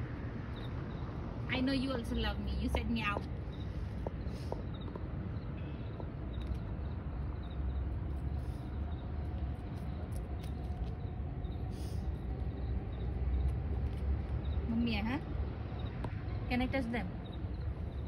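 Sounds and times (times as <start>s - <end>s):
low background rumble: 0.0s - 18.0s.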